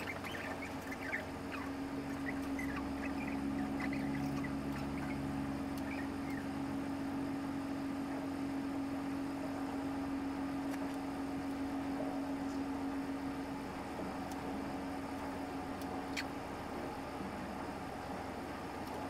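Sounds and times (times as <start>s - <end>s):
faint high chirps: 0.0s - 6.6s
ferry machinery humming: 0.0s - 19.0s.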